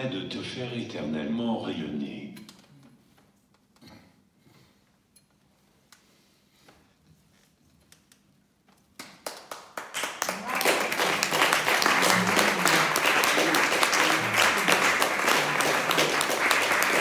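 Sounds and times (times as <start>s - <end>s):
audience applause: 9.2s - 17.0s.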